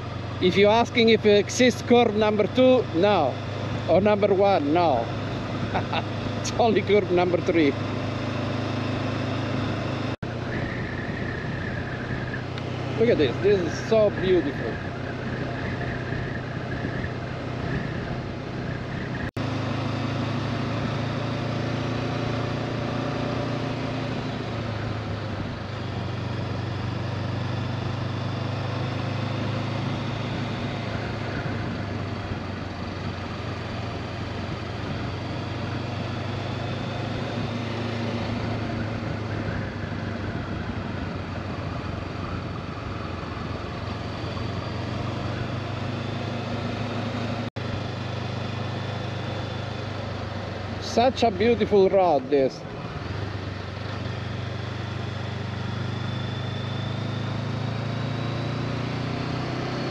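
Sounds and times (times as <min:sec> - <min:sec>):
motorcycle engine cruising: 0:00.0 - 0:59.9
wind rush: 0:13.4 - 0:19.3.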